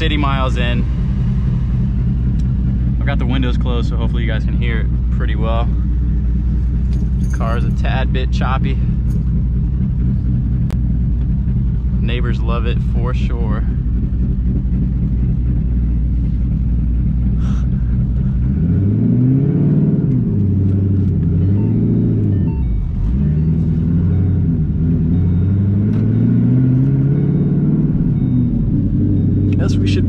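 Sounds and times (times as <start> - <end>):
car engine revving from inside cabin: 18.1 - 30.0.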